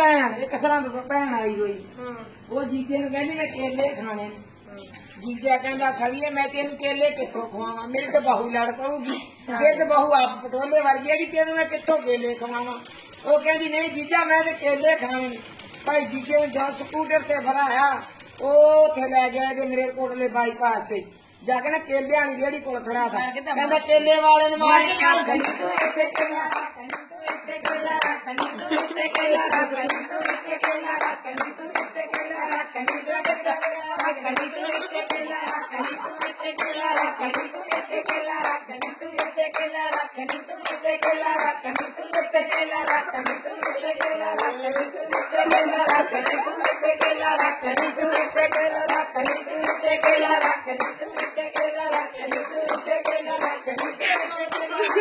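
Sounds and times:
voices: 0:00.0 - 0:55.0
rhythmic hand clapping: 0:10.6 - 0:19.0, 0:25.1 - 0:55.0.

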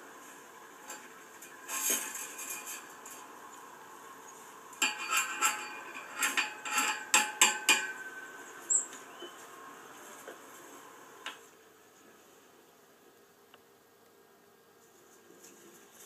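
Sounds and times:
wire and metal fittings clinking: 0:00.8 - 0:03.6, 0:04.8 - 0:08.1.

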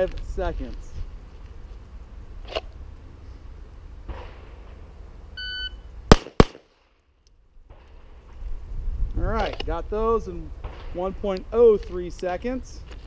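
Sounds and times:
pistol shots: 0:06.1 - 0:06.9.

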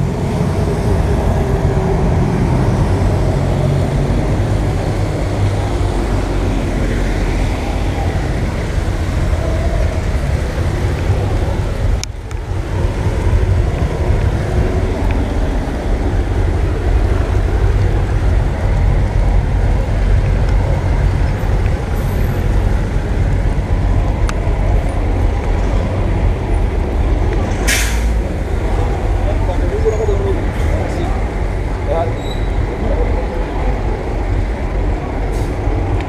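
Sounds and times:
heavy low rumble: 0:00.0 - 0:36.0
vehicles passing on wet road: 0:00.0 - 0:36.0
short sharp noise: 0:27.6 - 0:28.2.

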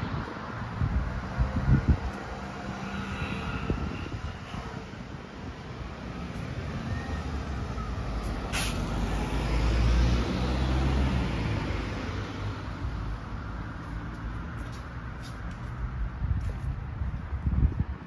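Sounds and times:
large vehicle engine passing: 0:00.0 - 0:14.5.

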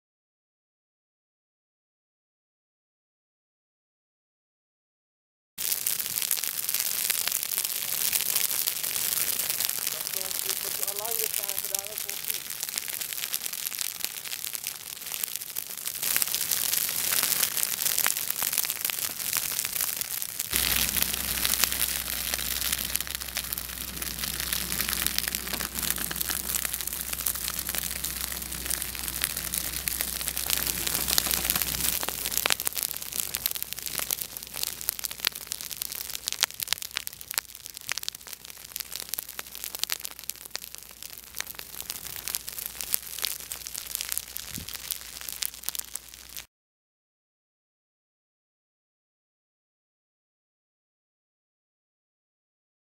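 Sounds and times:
grass fire crackling: 0:05.6 - 0:46.5
low steady rumble: 0:20.6 - 0:33.3.

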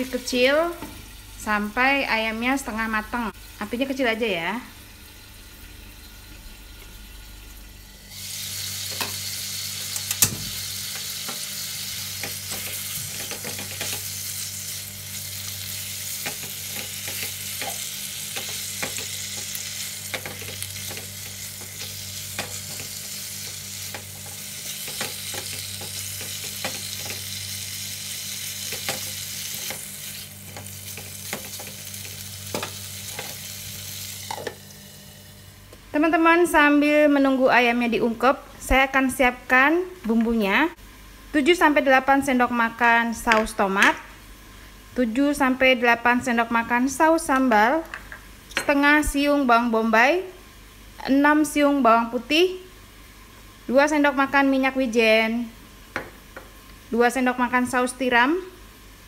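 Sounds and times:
chicken wings sizzling in pan: 0:07.8 - 0:35.5.

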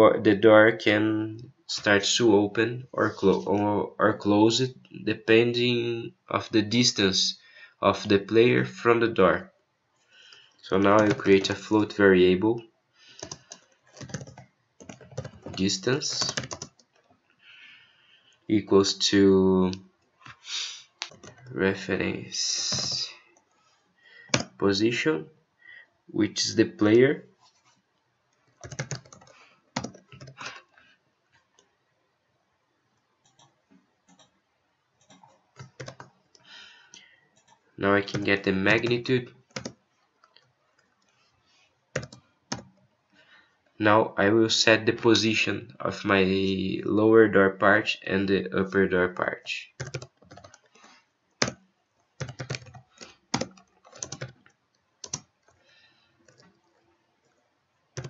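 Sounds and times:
keyboard typing: 0:10.3 - 0:11.9, 0:13.1 - 0:17.1, 0:21.0 - 0:21.6, 0:22.4 - 0:23.1, 0:24.2 - 0:24.6, 0:28.4 - 0:30.6, 0:33.2 - 0:34.4, 0:35.0 - 0:41.2, 0:41.9 - 0:42.8, 0:49.7 - 0:57.4.

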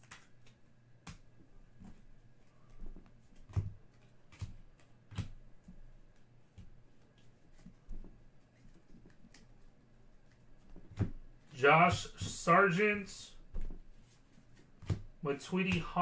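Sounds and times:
cards tapping and flicking: 0:00.0 - 0:02.0, 0:02.7 - 0:09.5.

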